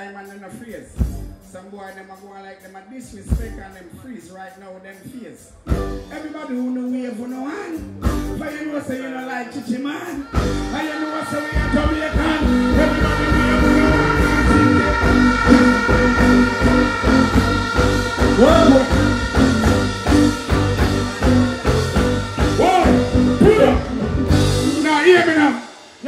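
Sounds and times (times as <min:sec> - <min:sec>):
band playing dancehall backing: 0:00.0 - 0:26.0
person singing: 0:10.2 - 0:23.9.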